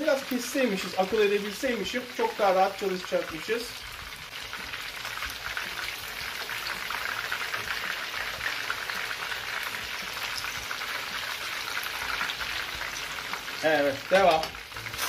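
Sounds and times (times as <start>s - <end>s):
chicken frying in oil: 0.0s - 15.0s.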